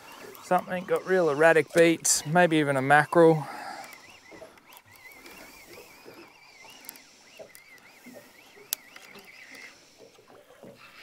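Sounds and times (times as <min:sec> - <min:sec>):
fishing reel whining: 0:00.0 - 0:11.0.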